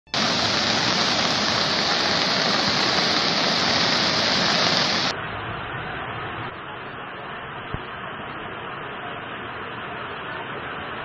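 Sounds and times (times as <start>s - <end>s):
flood torrent rushing: 0.1s - 5.1s
heavy rain: 0.1s - 11.0s.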